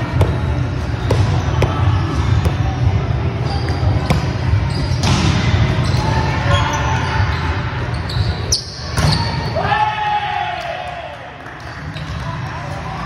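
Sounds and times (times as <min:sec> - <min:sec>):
volleyballs hit and bouncing: 0:00.0 - 0:02.9, 0:03.5 - 0:06.3.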